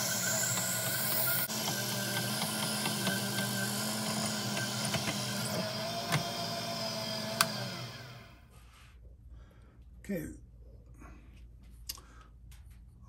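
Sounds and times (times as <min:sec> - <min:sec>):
drill cutting clicks: 0:00.0 - 0:08.2
lathe motor humming: 0:00.0 - 0:08.4.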